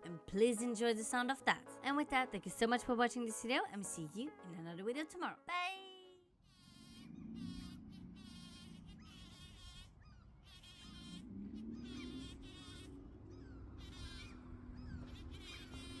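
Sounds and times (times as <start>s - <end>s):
bumblebee buzzing: 6.4s - 16.0s
short high bird calls: 6.8s - 16.0s.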